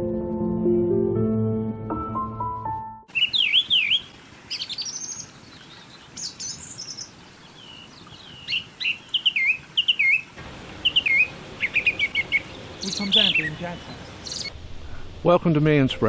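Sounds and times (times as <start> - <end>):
brief music: 0.0 - 3.1
birds singing: 3.1 - 14.6.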